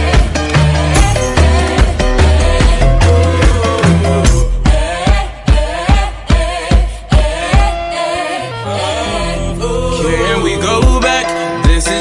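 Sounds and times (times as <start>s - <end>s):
person singing: 0.0s - 12.0s
kick drum beat: 0.1s - 7.8s, 10.8s - 12.0s.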